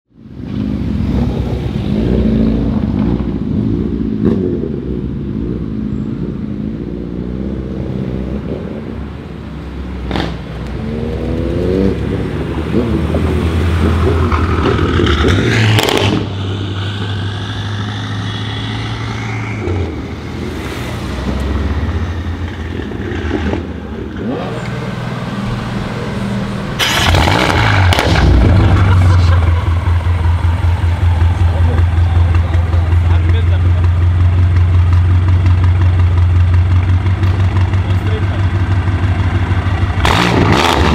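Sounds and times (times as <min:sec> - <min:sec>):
car engine revving: 0:00.3 - 0:40.9
exhaust crackles: 0:10.1 - 0:40.9.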